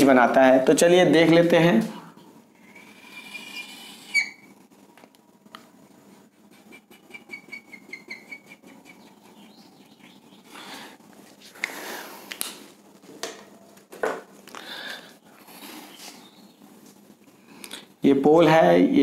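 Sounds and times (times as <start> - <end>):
whiteboard marker squeaking: 2.7 - 4.5, 6.5 - 10.2.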